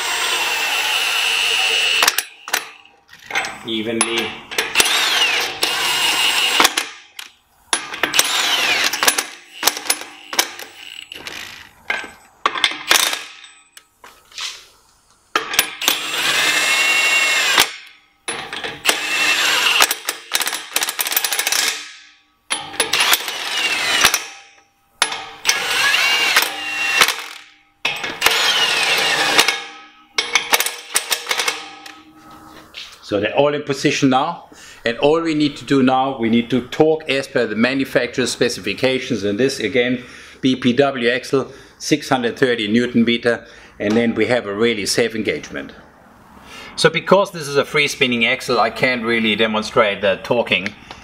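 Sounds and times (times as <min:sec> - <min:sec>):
impact wrench hammering and whining: 0:00.0 - 0:13.8, 0:15.3 - 0:32.4.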